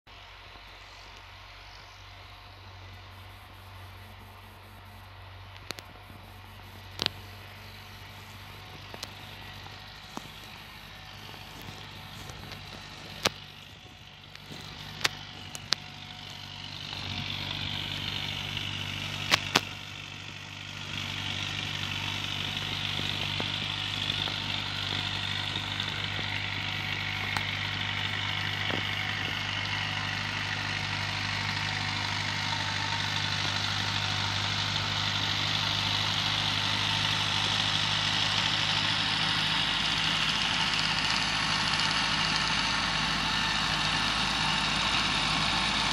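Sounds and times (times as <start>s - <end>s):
diesel engine running: 0.1s - 45.9s
whine above engine: 0.1s - 45.9s
sharp clicks: 5.5s - 20.4s, 21.0s - 30.2s.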